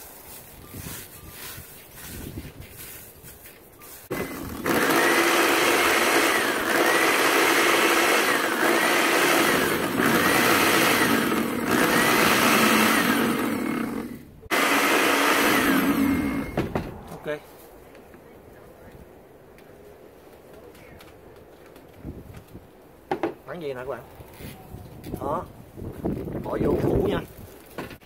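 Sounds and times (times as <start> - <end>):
blender grinding with a whine: 4.1 - 16.6.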